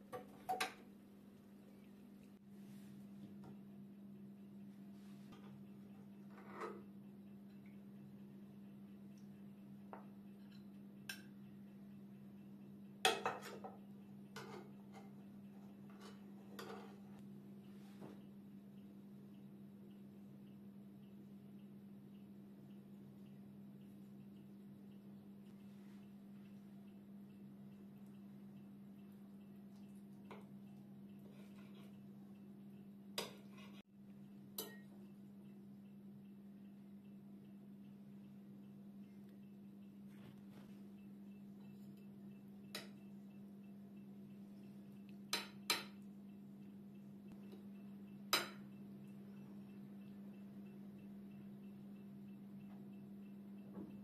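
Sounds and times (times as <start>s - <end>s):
steady low hum: 0.0s - 54.0s
knife scraping plate: 15.9s - 17.2s
metal spoon clinking on plate: 34.6s - 34.9s.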